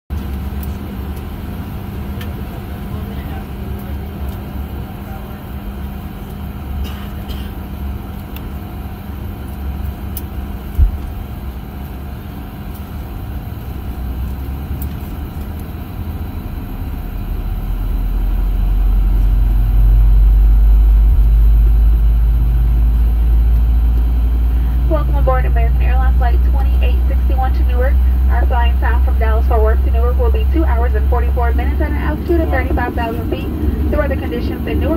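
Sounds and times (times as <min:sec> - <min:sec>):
airplane cabin engine rumble: 0:00.1 - 0:34.9.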